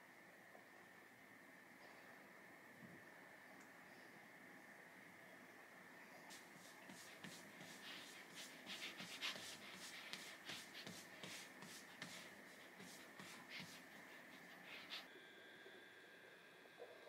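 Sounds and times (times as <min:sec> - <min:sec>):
faint high hum: 0:00.0 - 0:17.0
quick sniffing: 0:06.3 - 0:15.1.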